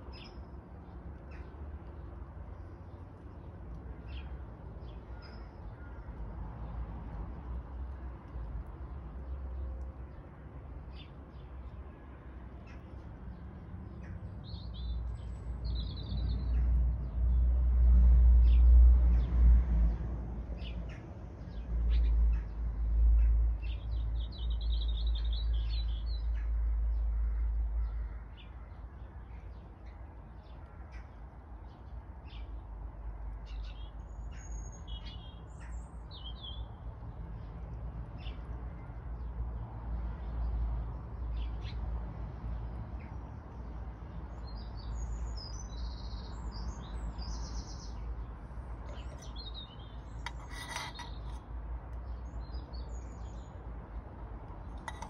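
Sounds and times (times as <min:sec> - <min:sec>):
small birds chirping: 0:44.1 - 0:53.6.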